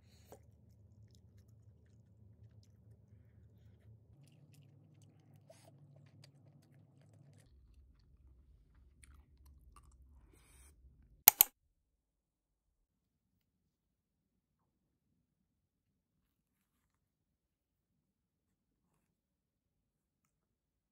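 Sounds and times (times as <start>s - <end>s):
faint chewing: 0.0s - 10.6s
fork and spoon clicking on plate: 11.3s - 11.5s
loud sharp clicks: 11.3s - 11.5s.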